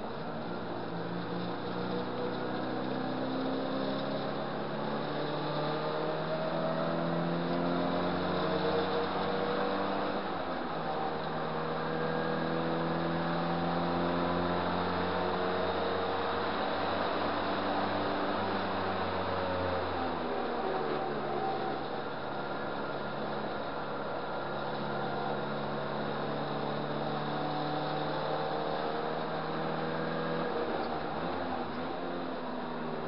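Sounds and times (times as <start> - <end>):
car engine running hard: 0.0 - 33.0
road and wind noise: 0.0 - 33.0.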